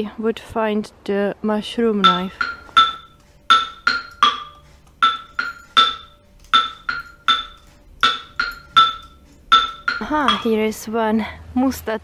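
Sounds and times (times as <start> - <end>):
tuned percussion notes: 2.0 - 10.8.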